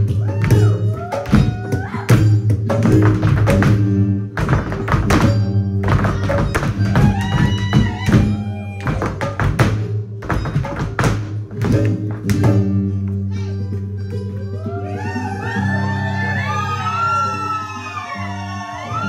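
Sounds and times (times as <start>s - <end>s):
cajon hits: 0.0s - 12.8s
dance shoes striking stage: 0.0s - 14.5s.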